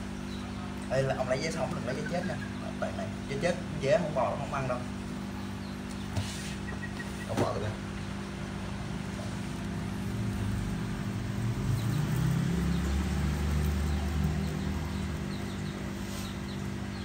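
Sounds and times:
steady low hum: 0.0s - 17.0s
passing vehicle engine rumble: 8.4s - 17.0s.

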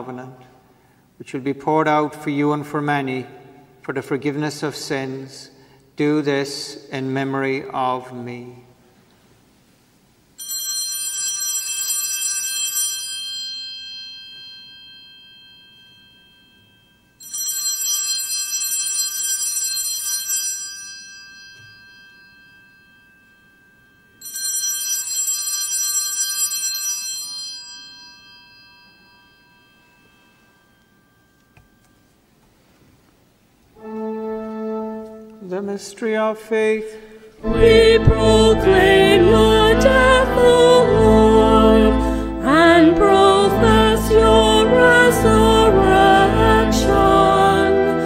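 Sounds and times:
altar bells ringing: 10.4s - 32.8s, 37.4s - 48.0s.

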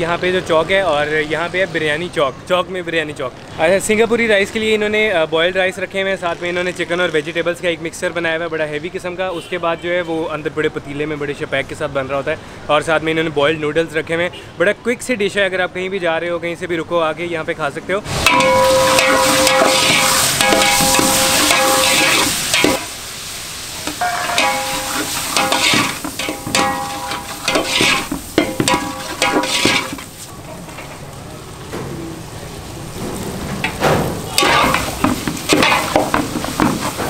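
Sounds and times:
chicken sizzling in oil: 18.1s - 30.5s, 34.2s - 37.0s
ladle scraping in steel pot: 18.2s - 22.9s, 23.9s - 31.0s, 34.4s - 37.0s.

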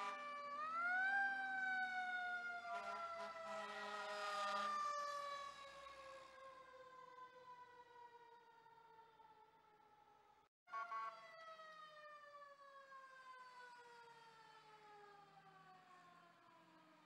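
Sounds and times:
horn blasts: 2.7s - 4.6s.

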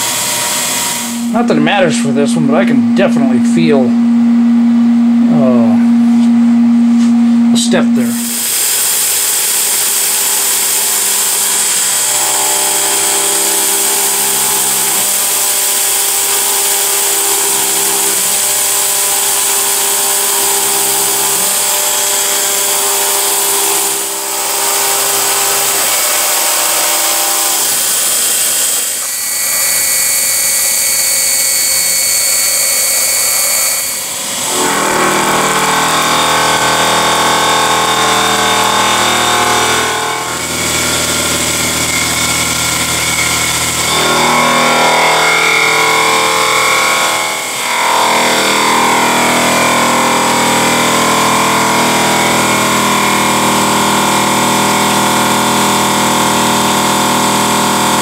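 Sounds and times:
milling machine whine: 0.0s - 58.0s
mist coolant hissing: 8.1s - 12.1s.

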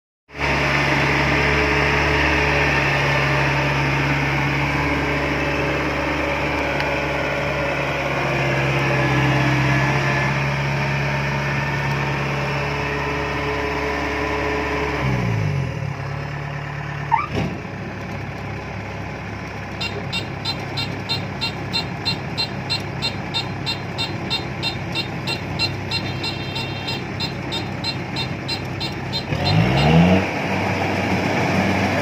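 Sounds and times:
combine harvester engine drone: 0.3s - 32.0s.

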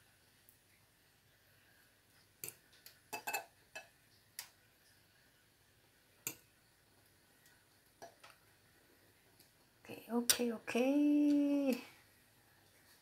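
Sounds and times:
metal spoon clinking on bowl: 3.2s - 3.9s.

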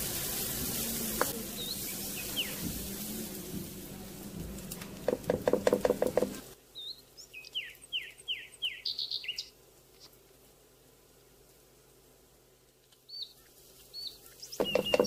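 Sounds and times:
food sizzling in a wok: 0.0s - 3.9s
bird chirping: 1.6s - 2.8s, 5.4s - 9.6s, 13.1s - 15.0s.

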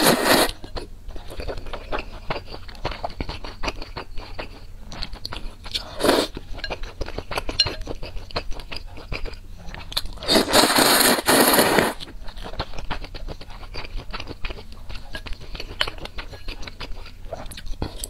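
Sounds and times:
loud slurp of noodles: 0.0s - 0.5s, 10.2s - 12.0s
wet chewing and mouth clicks: 0.5s - 10.6s, 11.9s - 18.0s.

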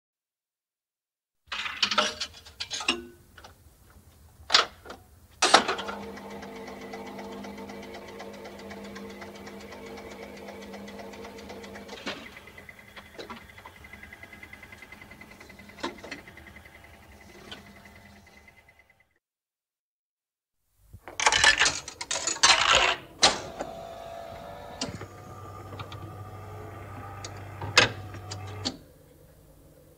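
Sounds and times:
jukebox mechanism clicks and clunks: 4.5s - 16.6s, 21.0s - 28.8s
record changer motor humming: 5.6s - 19.1s, 23.0s - 29.7s.

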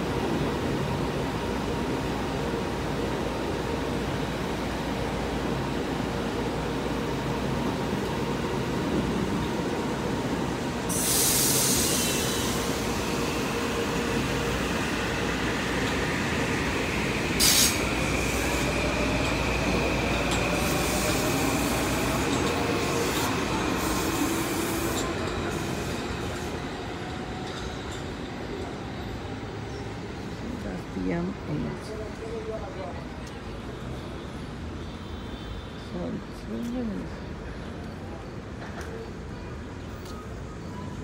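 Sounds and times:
electric train rolling past: 0.0s - 35.3s
burst of air hiss: 10.9s - 12.5s, 17.4s - 17.8s.

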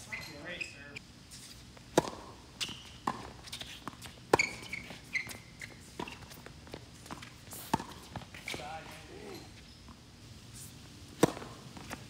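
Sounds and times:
tennis ball bouncing on hard court: 1.8s - 9.6s, 11.1s - 12.0s
tennis balls struck by racquets: 1.8s - 9.6s, 11.1s - 12.0s.

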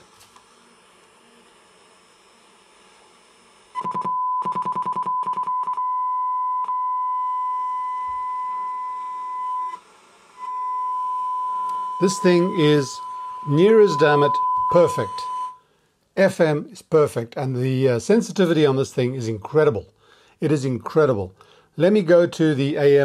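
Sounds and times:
radio test tone: 3.8s - 9.8s, 10.4s - 15.6s.

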